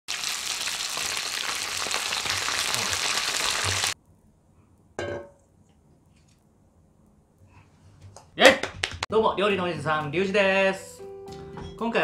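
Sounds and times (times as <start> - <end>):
chicken frying in oil: 0.1 - 4.0.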